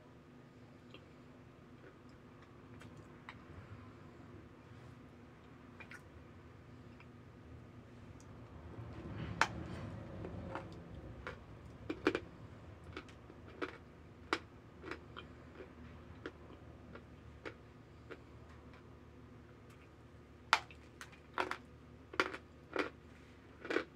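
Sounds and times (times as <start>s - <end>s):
chewing crunchy cornstarch: 0.7s - 3.5s, 9.3s - 23.9s.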